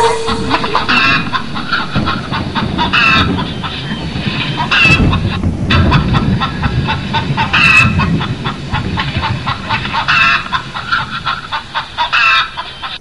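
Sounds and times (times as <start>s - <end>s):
hen squawks: 0.0s - 5.1s
hens clucking: 0.0s - 13.0s.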